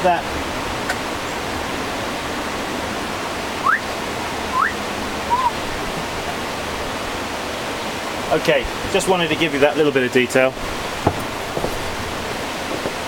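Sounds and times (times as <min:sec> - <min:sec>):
river flowing: 0:00.0 - 0:13.0
short rising whistles: 0:04.5 - 0:05.6.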